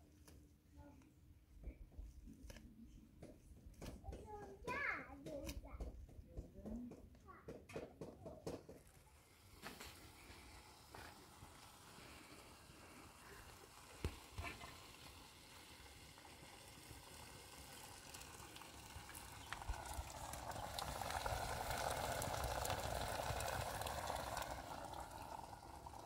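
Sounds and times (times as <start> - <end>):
stew simmering: 8.7 - 26.0
water pouring into pot: 8.9 - 26.0.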